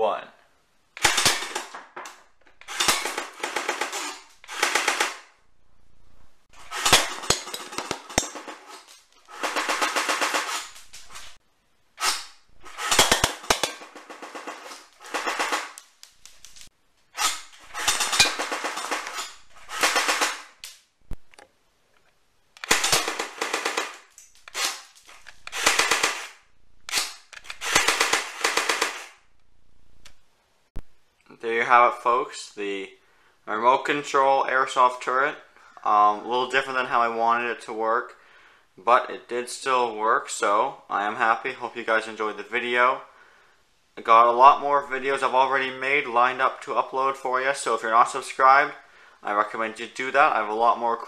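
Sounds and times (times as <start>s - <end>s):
airsoft gun firing bursts: 1.0s - 1.7s, 2.7s - 5.3s, 9.3s - 10.7s, 12.7s - 15.8s, 17.7s - 20.6s, 22.6s - 24.9s, 25.5s - 29.2s.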